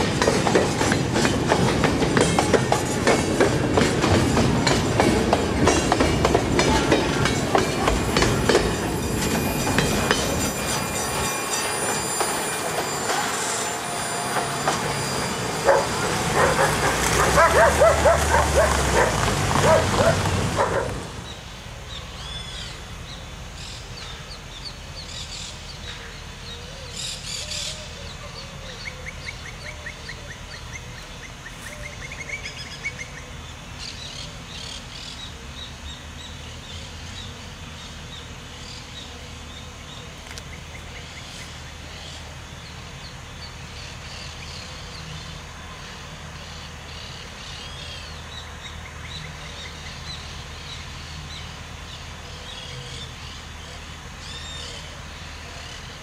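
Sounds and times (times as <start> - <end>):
distant diesel locomotive rumble: 0.0 - 56.0.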